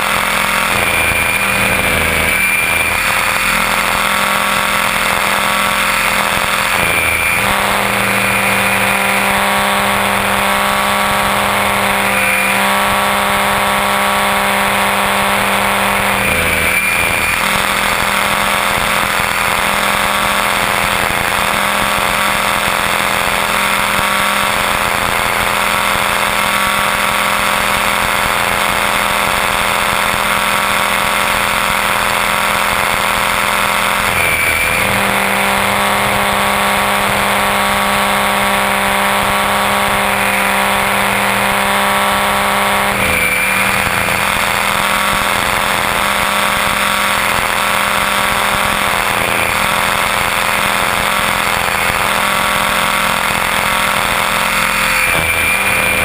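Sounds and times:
rc helicopter rotor whine: 0:00.0 - 0:56.0.

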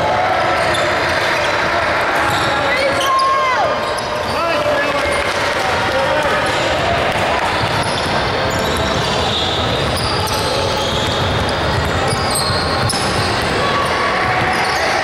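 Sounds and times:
gym background noise: 0:00.0 - 0:15.0.

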